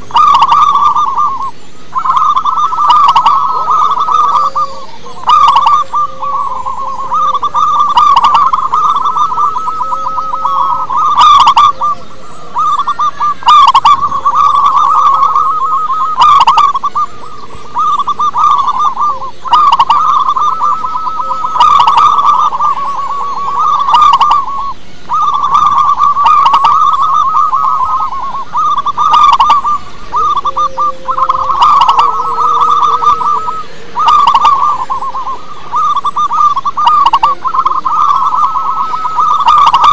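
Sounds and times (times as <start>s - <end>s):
dove cooing trills: 0.0s - 39.9s.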